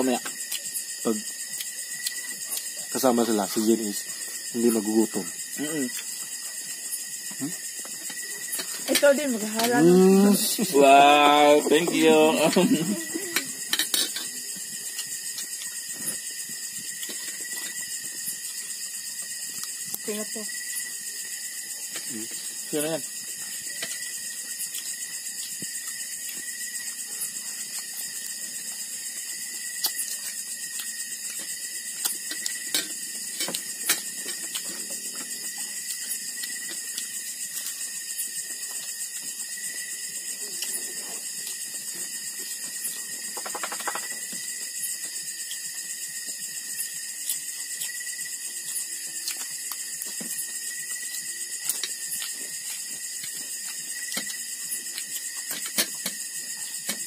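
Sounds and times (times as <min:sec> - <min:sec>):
insects trilling: 0:00.0 - 0:57.0
plates and utensils clinking: 0:11.7 - 0:14.4.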